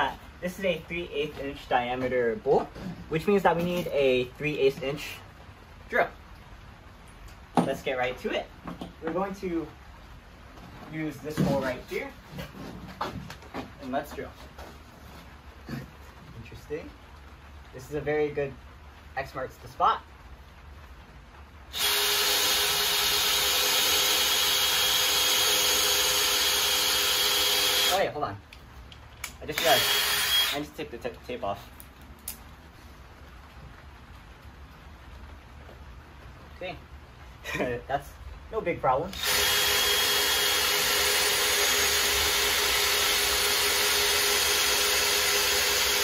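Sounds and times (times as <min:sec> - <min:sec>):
power drill boring wood: 0:21.7 - 0:28.0, 0:29.5 - 0:30.6, 0:39.2 - 0:46.0.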